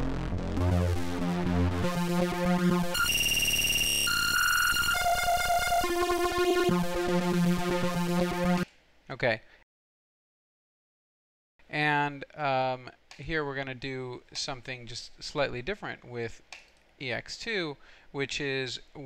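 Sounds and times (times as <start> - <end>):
synthesizer tone jumping in pitch: 0.0 - 8.6.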